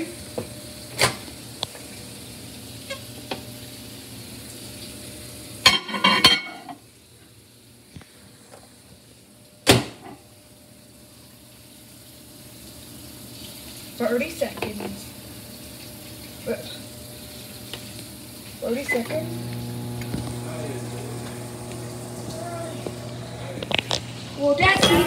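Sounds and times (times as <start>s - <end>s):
low steady hum: 18.9s - 25.0s.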